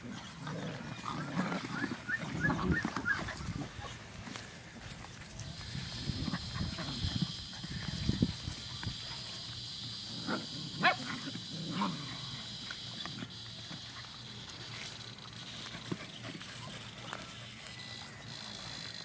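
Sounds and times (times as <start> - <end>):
puppies growling and grunting: 0.0 - 4.2, 5.6 - 8.5, 9.4 - 14.0
puppies yipping: 0.0 - 19.0.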